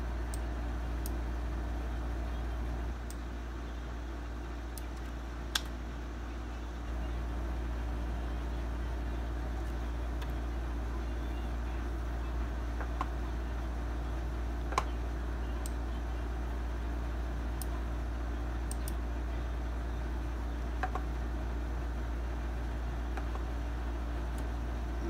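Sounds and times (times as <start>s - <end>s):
low hum: 0.0s - 25.0s
computer mouse clicks: 18.7s - 19.0s.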